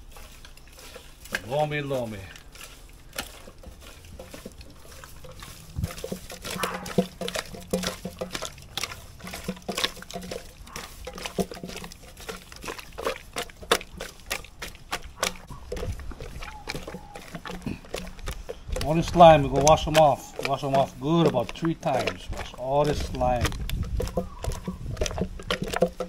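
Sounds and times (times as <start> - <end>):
wet squelching and slaps: 0.0 - 26.0.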